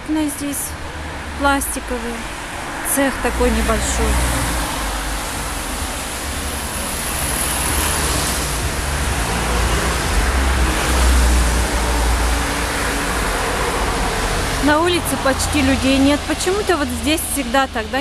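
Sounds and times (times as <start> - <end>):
tyre hiss on wet road: 4.0 - 15.2.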